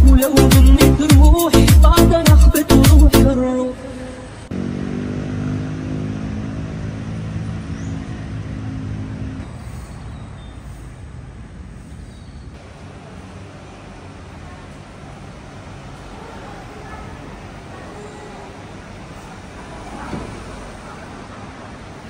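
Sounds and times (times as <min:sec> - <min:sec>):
road traffic: 0:00.0 - 0:22.0
vehicle engine running: 0:04.2 - 0:16.3.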